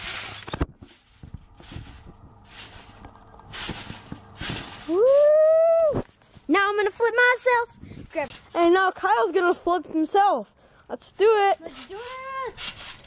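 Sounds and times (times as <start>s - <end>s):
trampoline bounces: 0.0s - 6.5s
boy shouting woo: 4.9s - 6.0s.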